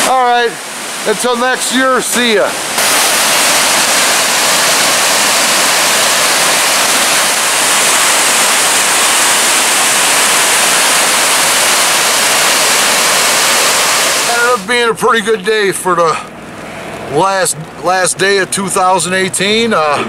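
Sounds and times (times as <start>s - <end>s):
water rushing over falls: 0.0s - 14.8s.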